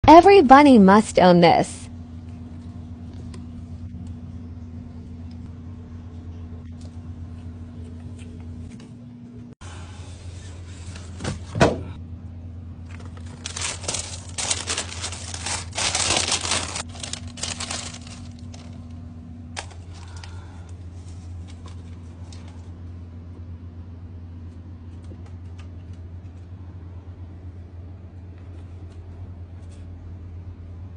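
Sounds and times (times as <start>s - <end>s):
low hum: 0.1s - 30.9s
tissue paper crinkling: 12.9s - 18.9s.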